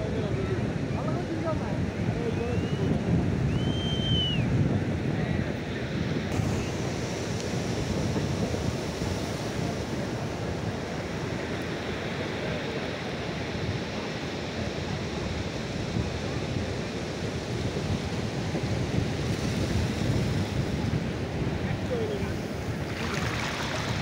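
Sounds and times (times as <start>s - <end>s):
wind buffeting microphone: 0.0s - 24.0s
surf breaking on beach: 5.0s - 24.0s.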